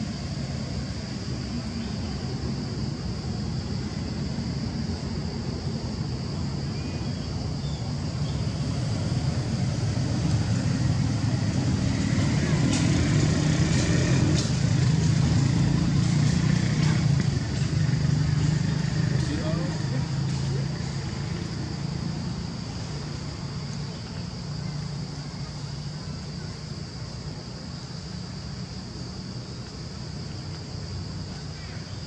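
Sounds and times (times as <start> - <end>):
vehicle engine rumbling: 7.4 - 31.6.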